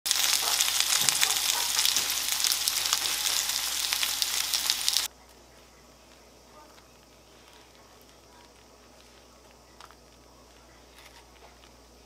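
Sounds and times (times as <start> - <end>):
okra sizzling in oil: 0.1 - 5.1.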